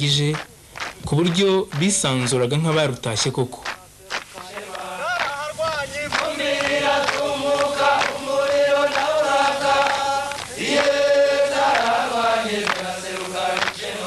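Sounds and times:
group chanting in long notes: 0:04.3 - 0:14.0.

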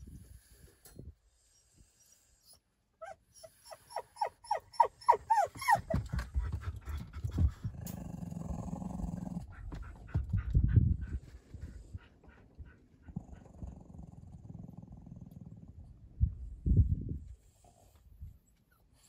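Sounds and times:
small dog whining: 0:02.4 - 0:06.3.

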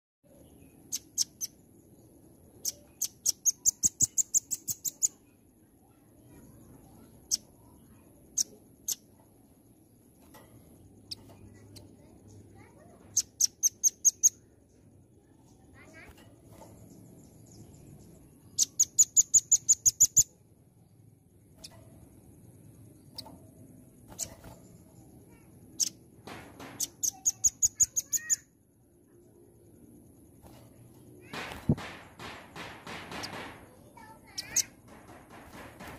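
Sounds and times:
nuthatch chipping calls: 0:00.8 - 0:01.6, 0:02.5 - 0:05.2, 0:08.2 - 0:09.1, 0:11.0 - 0:14.5, 0:17.3 - 0:20.4, 0:24.1 - 0:28.4, 0:31.2 - 0:35.7.

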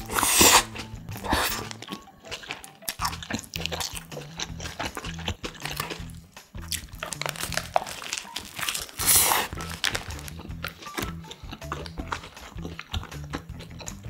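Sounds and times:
background music with bass: 0:00.0 - 0:01.9, 0:02.9 - 0:08.2, 0:08.8 - 0:14.0
crunchy chewing: 0:00.0 - 0:14.0
paper wrapper crinkling: 0:06.8 - 0:11.1.

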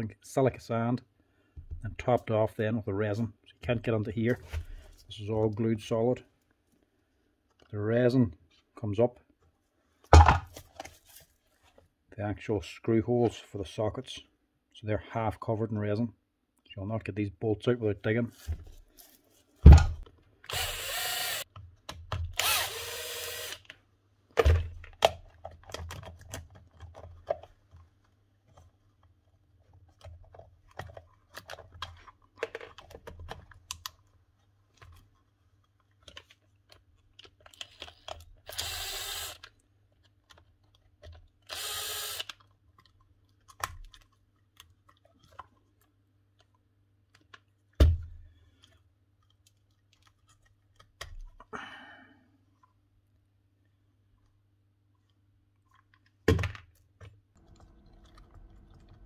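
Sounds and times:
cordless drill running: 0:20.5 - 0:21.4, 0:22.4 - 0:23.7, 0:37.6 - 0:39.4, 0:41.5 - 0:42.3
clicks and rattles of parts: 0:24.3 - 0:29.1, 0:29.7 - 0:38.6.

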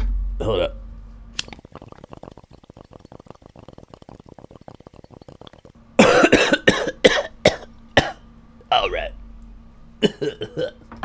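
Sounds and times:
bong bubbling: 0:01.4 - 0:09.2
person coughing: 0:06.0 - 0:09.0, 0:10.0 - 0:10.8.

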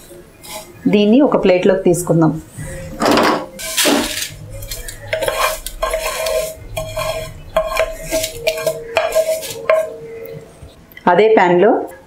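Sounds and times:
metal utensil scraping steel plate: 0:02.8 - 0:10.5.

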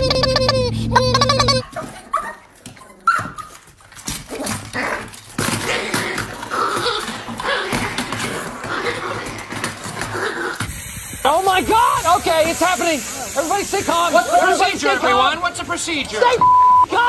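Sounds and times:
dog yipping and whimpering: 0:00.0 - 0:03.6.

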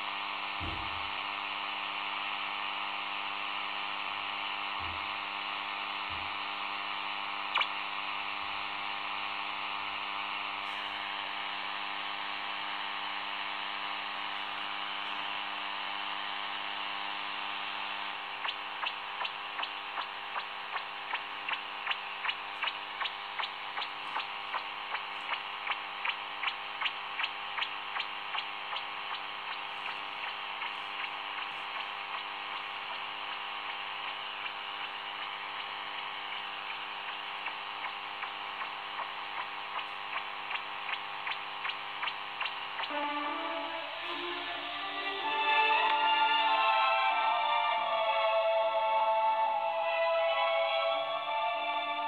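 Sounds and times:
radio static hiss: 0:00.0 - 0:47.4
faint hum: 0:00.0 - 0:52.0
regular ticking: 0:18.4 - 0:42.9.

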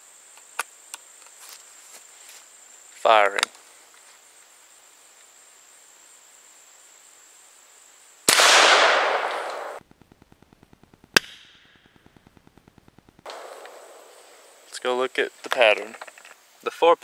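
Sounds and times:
gunshot blast: 0:08.3 - 0:09.8
sharp crack: 0:08.3 - 0:14.5.

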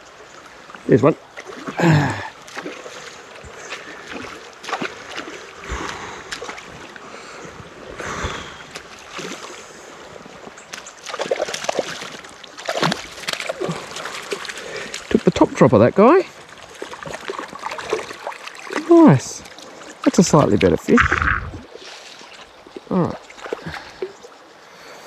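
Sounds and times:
river water splashing: 0:00.0 - 0:25.0.

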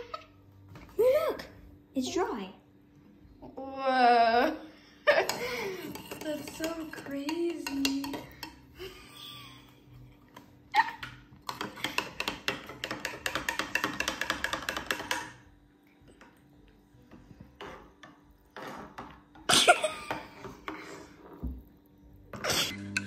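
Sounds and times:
metal spoon clinking in mug: 0:05.3 - 0:08.6.

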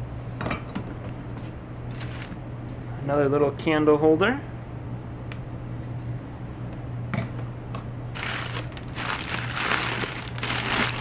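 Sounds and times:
newspaper crinkling and rustling: 0:01.9 - 0:02.4, 0:08.2 - 0:11.0.

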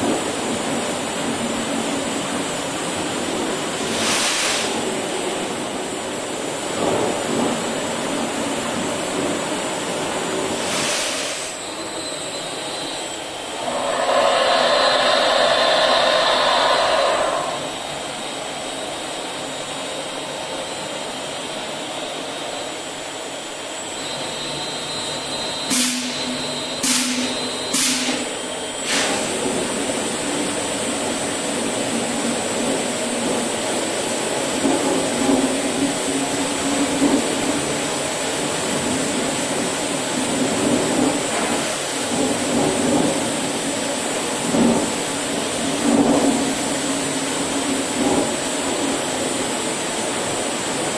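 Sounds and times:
loud rush with low hum: 0:13.4 - 0:18.6
brush machine rushing noise: 0:13.6 - 0:17.8.

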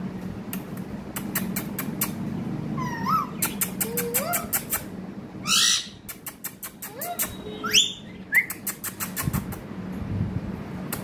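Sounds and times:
steady low hum: 0:00.0 - 0:11.0
parakeet squawking: 0:02.8 - 0:04.6, 0:05.4 - 0:06.1, 0:06.9 - 0:08.6
parakeet clicking and whistling: 0:03.1 - 0:04.9, 0:05.5 - 0:09.6.

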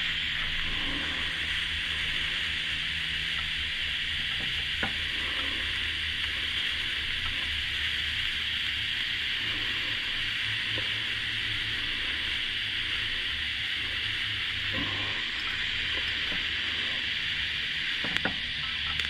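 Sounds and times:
welding arc hissing: 0:00.0 - 0:19.0.

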